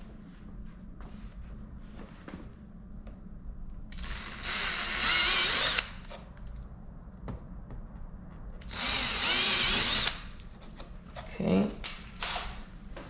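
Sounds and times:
cordless drill boring: 4.0s - 6.0s, 8.6s - 10.3s, 12.2s - 12.6s.

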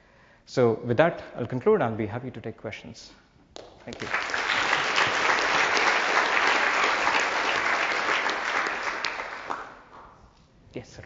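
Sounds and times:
audience applauding: 3.9s - 9.9s.

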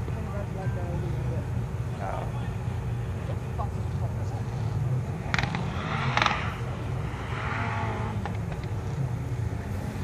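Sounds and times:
distant rally car engine revving: 3.3s - 10.0s.

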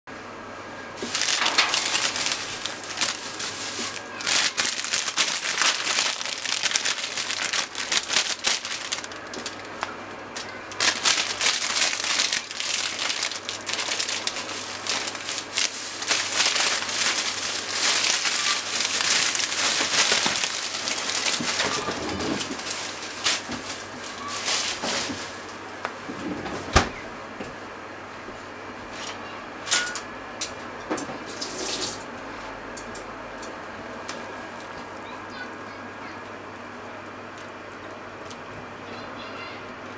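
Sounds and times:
boiling water bubbling: 36.2s - 38.9s.

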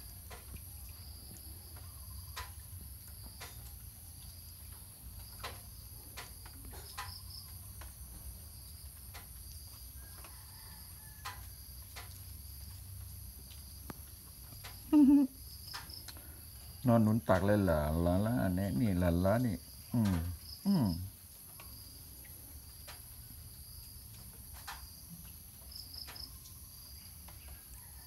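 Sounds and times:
insects chirring: 0.0s - 28.0s
faint clicks: 11.2s - 17.6s.

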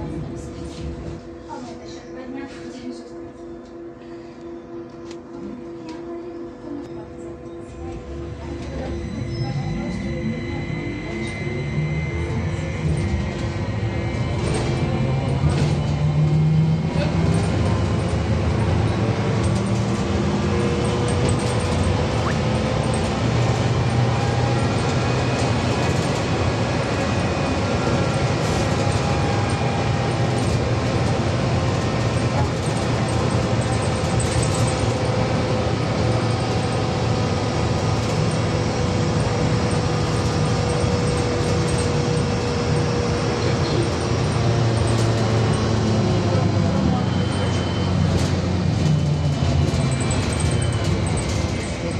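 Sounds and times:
trolleybus rumble: 0.0s - 51.9s.

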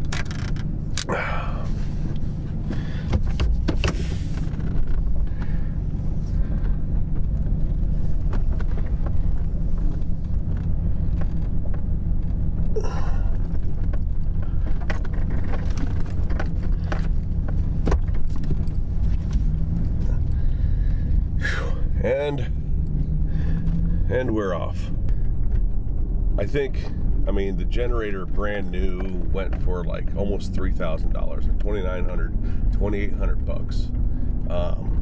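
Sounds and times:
handling clicks and rustles: 0.0s - 1.1s, 1.7s - 21.4s
truck engine humming: 0.0s - 35.0s.

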